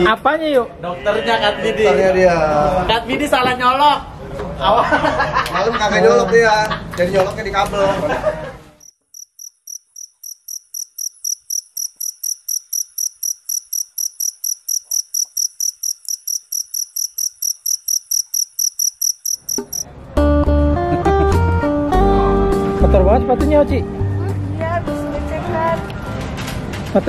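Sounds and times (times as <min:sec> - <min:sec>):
cricket chirping: 0:08.8 - 0:19.8.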